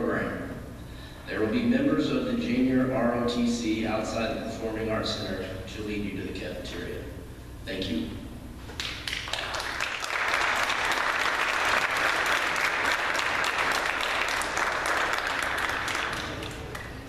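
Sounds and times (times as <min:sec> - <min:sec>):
audience applauding: 0:08.8 - 0:17.0.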